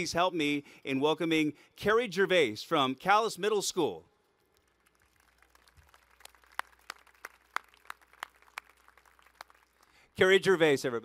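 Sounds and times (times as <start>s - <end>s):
hand clapping: 4.8s - 10.0s.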